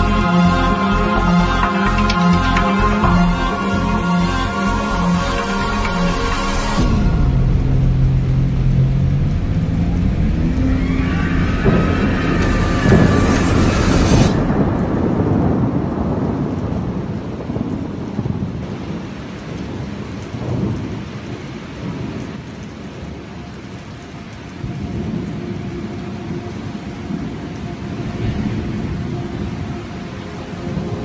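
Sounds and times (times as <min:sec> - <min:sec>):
rolling thunder: 0:00.0 - 0:23.2
rain hiss: 0:00.0 - 0:31.0.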